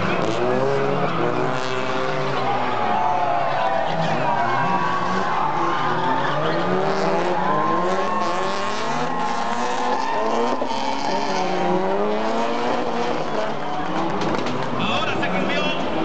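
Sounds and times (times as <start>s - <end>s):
high tyre squeal: 0.0s - 12.0s
car engines revving hard: 0.0s - 16.0s.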